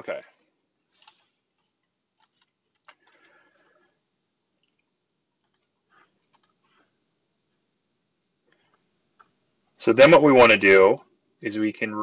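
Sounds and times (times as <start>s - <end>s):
keyboard and mouse clicks: 1.0s - 3.3s, 4.6s - 6.6s.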